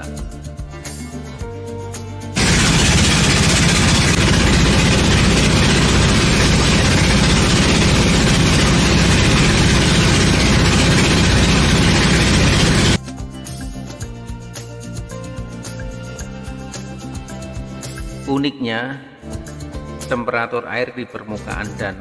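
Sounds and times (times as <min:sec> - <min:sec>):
small boat engine chugging: 0:02.4 - 0:13.0.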